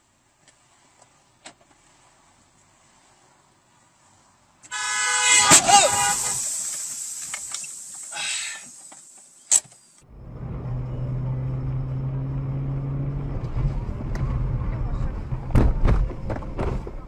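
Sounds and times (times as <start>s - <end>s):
faint street noise: 0.0s - 17.0s
road noise: 0.0s - 17.0s
car engine drone: 4.6s - 17.0s
sharp clicks: 8.8s - 10.1s.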